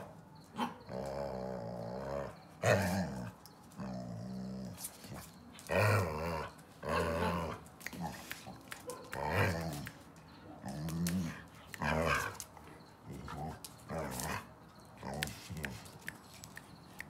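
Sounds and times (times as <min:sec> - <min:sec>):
dog growling: 0:00.9 - 0:04.9, 0:10.6 - 0:15.8.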